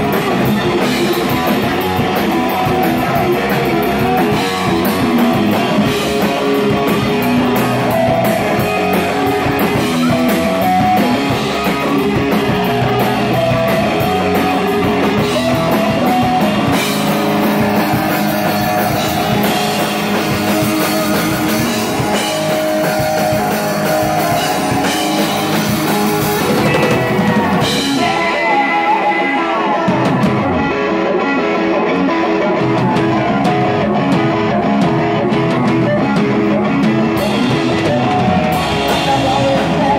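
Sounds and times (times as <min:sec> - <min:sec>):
bass guitar: 0:00.0 - 0:39.9
drum kit: 0:00.0 - 0:39.9
electric guitar: 0:00.0 - 0:39.9.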